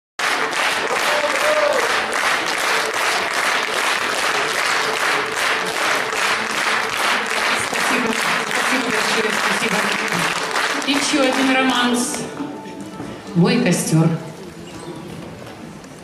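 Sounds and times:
audience applauding: 0.2 - 12.2.

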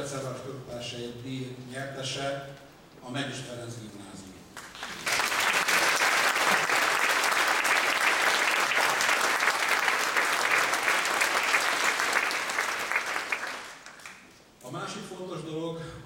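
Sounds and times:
audience applauding: 4.6 - 14.3.

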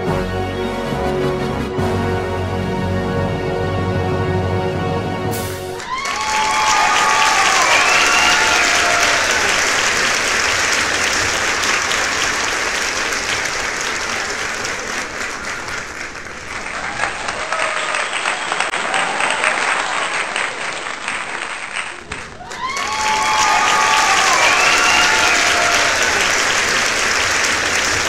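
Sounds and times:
large crowd clapping: 5.7 - 28.0.

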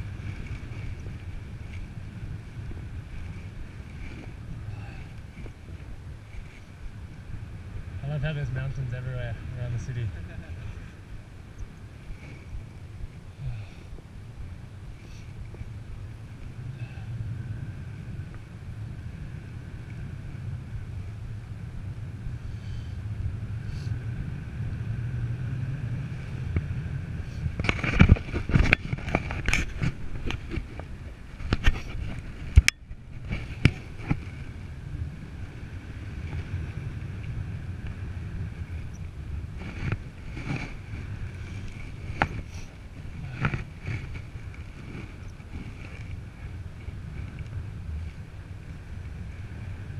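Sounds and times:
loud wind buffets: 0.0 - 49.9
wind rumbling on microphone: 0.0 - 49.9.

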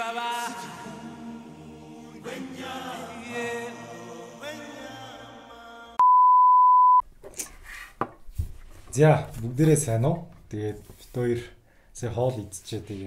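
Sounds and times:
choir answering: 0.0 - 6.0
loud high beep: 6.0 - 7.0.

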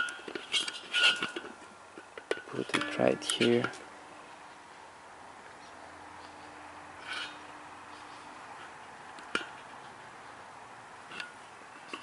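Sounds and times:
plastic parts rubbing and scraping: 0.0 - 1.7, 7.0 - 10.1.

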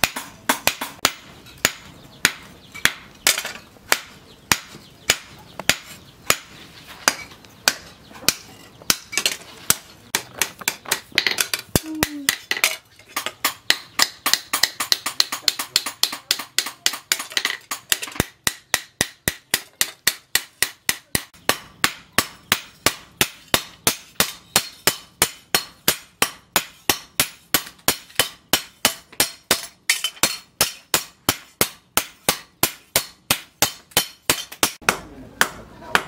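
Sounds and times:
hammer striking hot steel on anvil: 13.2 - 36.0.

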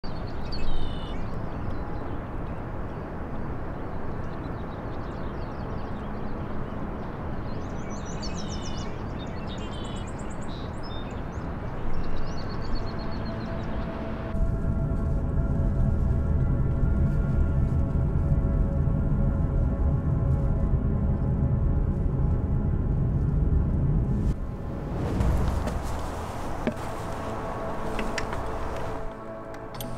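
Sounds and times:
small birds chirping and trilling: 0.1 - 2.3, 4.0 - 13.9
music drone: 11.3 - 29.9
outdoor background hiss: 24.3 - 29.9.

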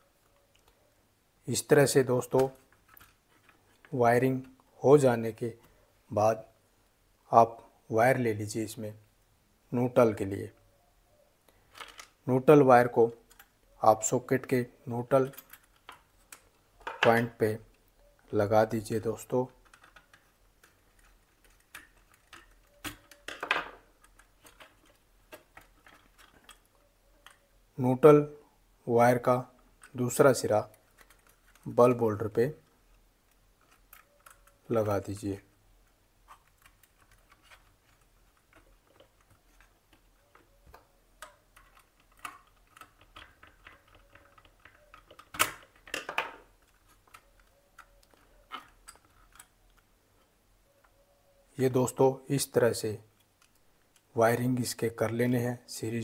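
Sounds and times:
hands handling plastic switchboard: 36.2 - 49.9.

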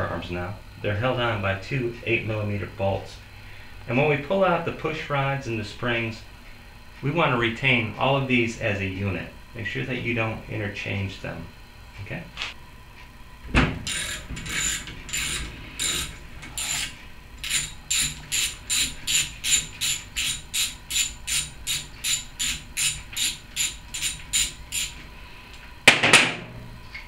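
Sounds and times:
ratchet wrench clicking: 13.9 - 25.0.

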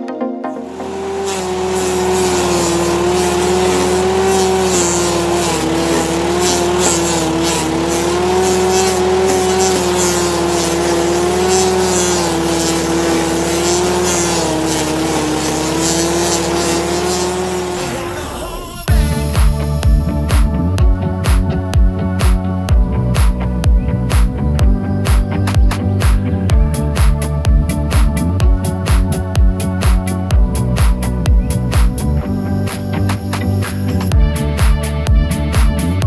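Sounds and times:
petrol engine under load: 0.6 - 18.9
wood chips hissing and pattering: 0.8 - 17.9.

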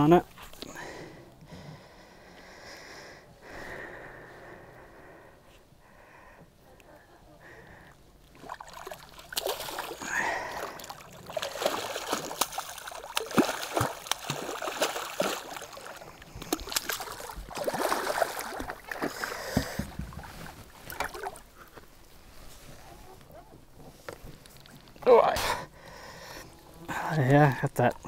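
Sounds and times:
fish splashing in water: 8.3 - 21.6.

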